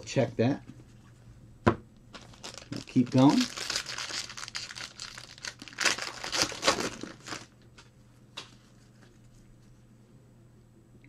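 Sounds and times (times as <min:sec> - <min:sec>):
wrapper crinkling and tearing: 0:02.1 - 0:07.9.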